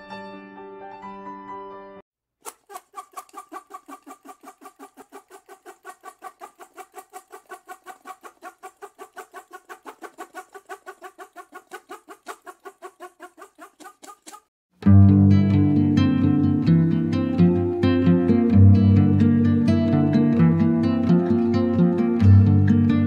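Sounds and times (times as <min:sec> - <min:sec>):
fast clucking bird calls: 0:02.4 - 0:14.5.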